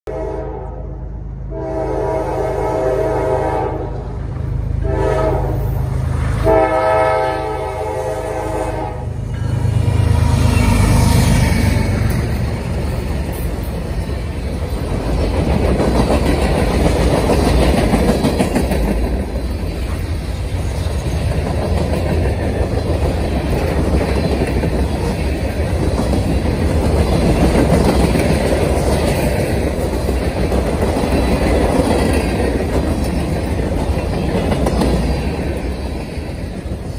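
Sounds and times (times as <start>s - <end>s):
diesel locomotive passing: 0.1s - 36.9s
train wheels clickety-clack: 9.6s - 36.9s.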